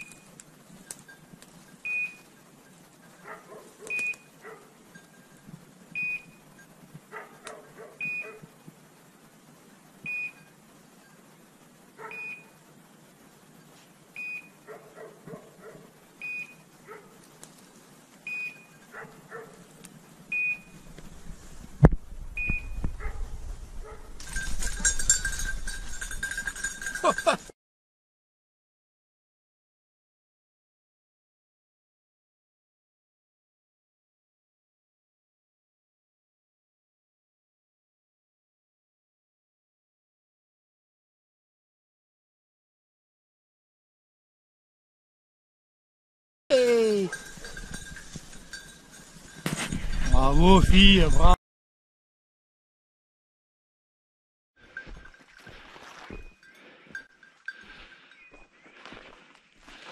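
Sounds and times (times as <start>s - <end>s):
rustling of movement: 0.0s - 27.5s, 46.7s - 51.4s, 54.6s - 59.9s
short high beeps: 1.8s - 2.2s, 3.9s - 4.3s, 6.0s - 6.6s, 8.0s - 8.4s, 10.1s - 10.5s, 12.1s - 12.6s, 16.2s - 16.6s, 18.3s - 18.8s, 20.3s - 20.8s, 22.4s - 22.9s.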